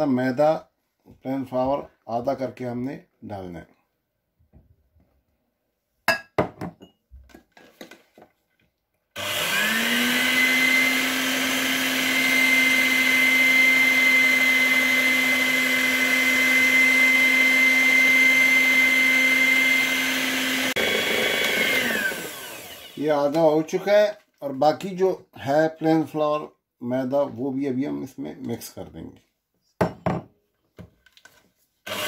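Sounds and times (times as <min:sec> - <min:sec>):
electric hand mixer whining: 0:09.2 - 0:23.7.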